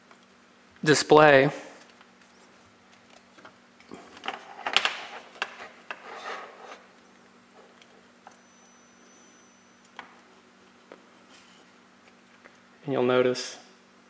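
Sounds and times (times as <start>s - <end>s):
faint steady hum: 0.0s - 14.0s
hand rubbing a monitor: 5.2s - 6.9s
faint high whine: 5.2s - 14.0s.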